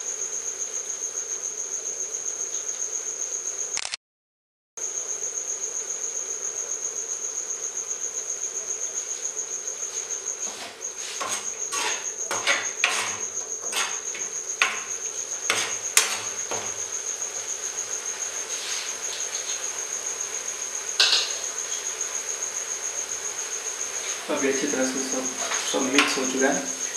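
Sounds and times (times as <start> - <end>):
metal spoon scraping metal pan: 10.4 - 17.0, 21.0 - 21.4, 25.4 - 26.4.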